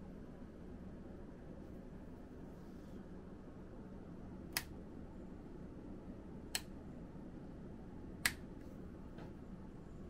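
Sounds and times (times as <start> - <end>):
lamp switch clicking: 4.5 - 4.7.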